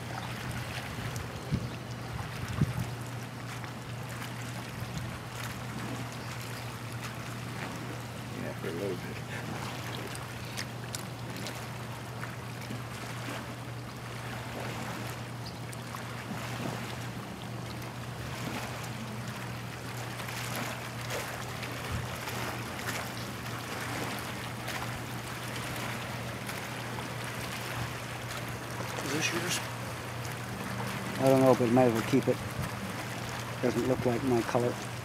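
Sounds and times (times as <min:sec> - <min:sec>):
small waves lapping: 0:00.0 - 0:35.0
steady low hum: 0:00.0 - 0:35.0
wind noise: 0:00.9 - 0:03.0.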